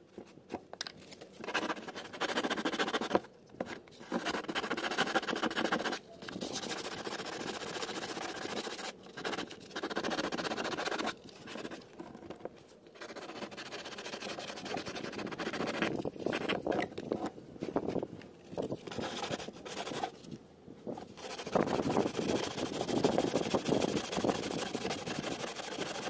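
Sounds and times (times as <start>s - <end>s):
sandpaper rasping on fiberglass: 1.5s - 3.2s, 4.0s - 11.8s, 13.0s - 16.6s, 18.8s - 20.2s, 21.0s - 26.0s.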